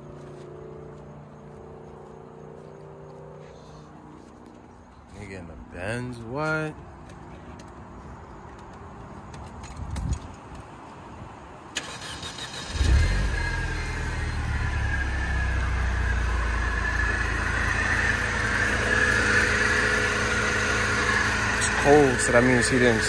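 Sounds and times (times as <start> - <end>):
engine starter turning: 11.8 - 14.2
car engine idling: 13.6 - 23.0.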